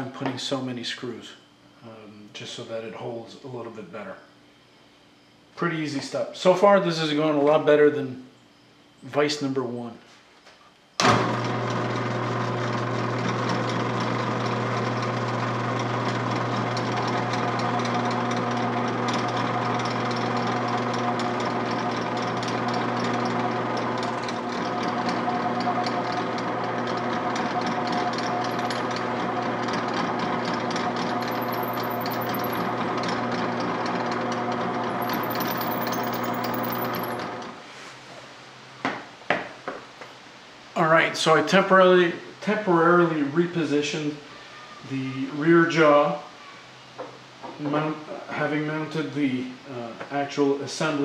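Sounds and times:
drill press humming: 11.0 - 37.6.

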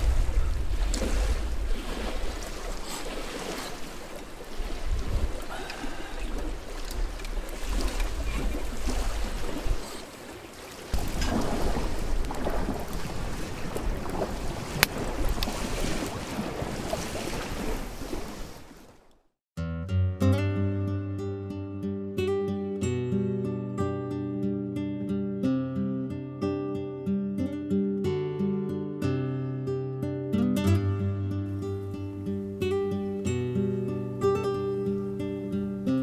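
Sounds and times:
wind buffeting microphone: 0.0 - 10.1, 10.9 - 18.8.

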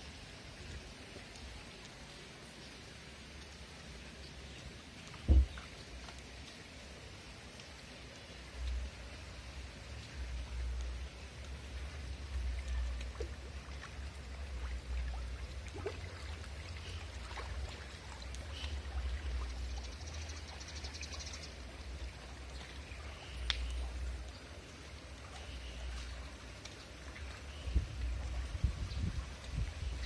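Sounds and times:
wind on phone microphone: 27.7 - 30.0.

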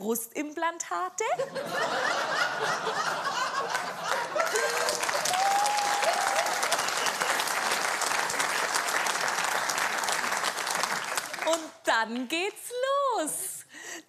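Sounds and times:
audience laughter: 1.4 - 5.3
audience applauding: 3.0 - 11.7.

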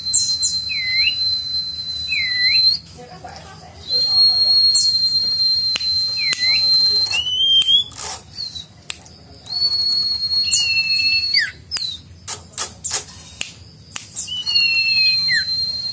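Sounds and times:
songbird singing whistles: 0.0 - 3.0, 3.8 - 15.9
sharp bird clicks: 4.8 - 9.7, 10.5 - 15.2.

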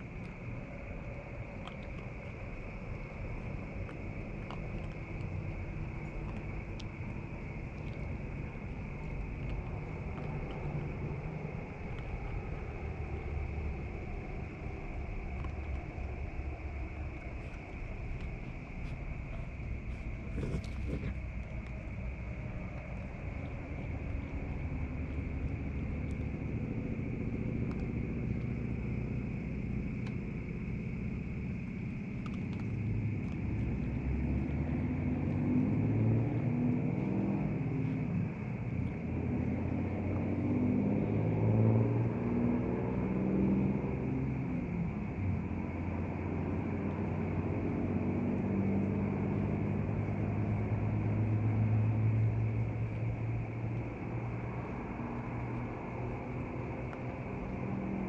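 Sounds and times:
low motor hum: 0.0 - 58.0
low outdoor rumble: 0.0 - 58.0
faint clicks: 0.1 - 12.5, 14.9 - 26.4, 27.4 - 28.7, 31.8 - 34.0.

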